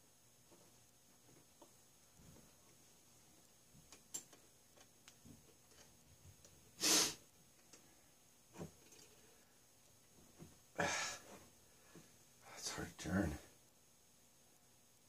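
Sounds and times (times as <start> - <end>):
faint metal clicks and taps: 3.8 - 6.6
person sniffing: 6.8 - 7.3.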